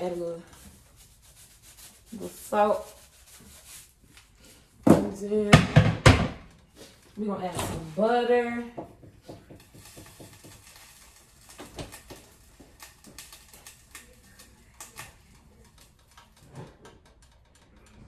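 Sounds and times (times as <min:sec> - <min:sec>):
kitchen items clicking and knocking: 0:04.8 - 0:06.6, 0:08.7 - 0:18.0.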